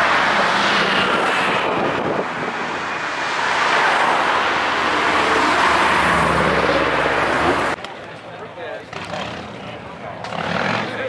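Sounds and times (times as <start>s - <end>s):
cars driving past: 0.0s - 8.2s.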